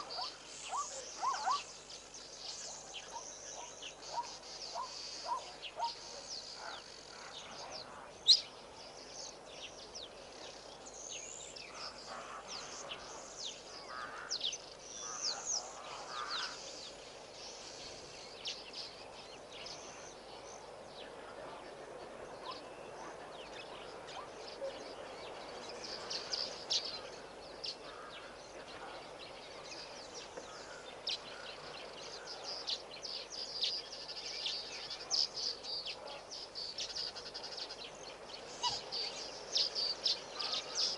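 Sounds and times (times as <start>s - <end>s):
faint steady hiss: 0.0s - 40.9s
small birds chirping: 0.0s - 40.9s.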